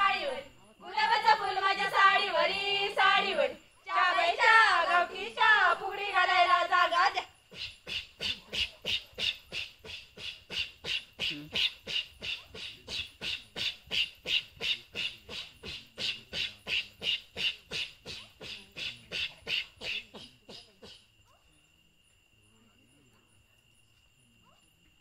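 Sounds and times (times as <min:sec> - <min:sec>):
women chanting breathy blows: 0:00.0 - 0:12.7.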